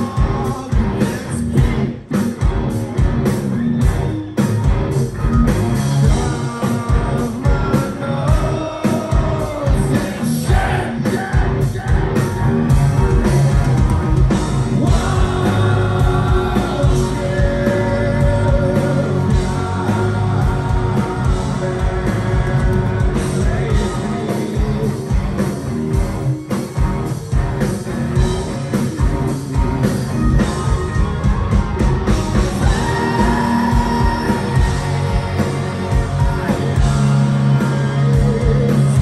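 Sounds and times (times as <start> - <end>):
lead vocalist singing: 0.0 - 2.1, 6.0 - 12.4, 14.7 - 25.4, 30.2 - 39.0
bass guitar: 0.0 - 39.0
drums: 0.0 - 39.0
electric guitars: 0.0 - 39.0.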